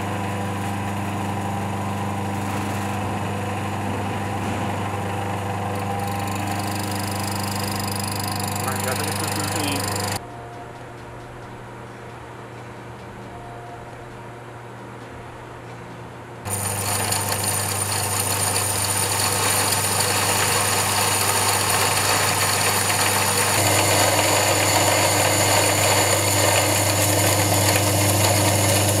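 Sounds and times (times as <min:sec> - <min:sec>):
grinding mill whirring: 0:00.0 - 0:10.2, 0:16.5 - 0:29.0.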